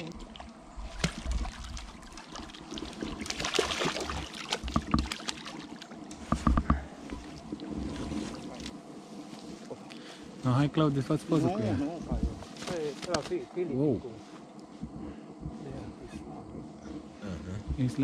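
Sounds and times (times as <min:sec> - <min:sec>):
water splashing and sloshing: 0:00.0 - 0:10.4
sharp knocks: 0:04.6 - 0:05.2.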